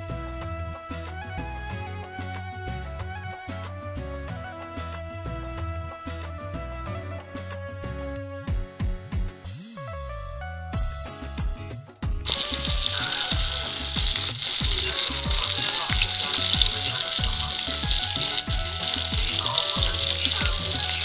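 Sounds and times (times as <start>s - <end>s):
chicken deep-frying in oil: 12.3s - 21.0s.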